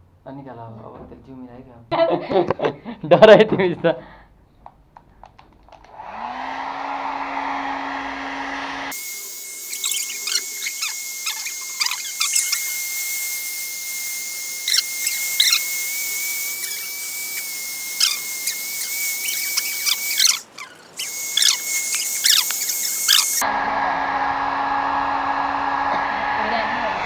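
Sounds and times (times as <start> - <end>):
hair dryer blowing: 5.8 - 27.0
puppy squealing and whimpering: 9.7 - 12.7, 14.6 - 15.7, 16.5 - 23.4.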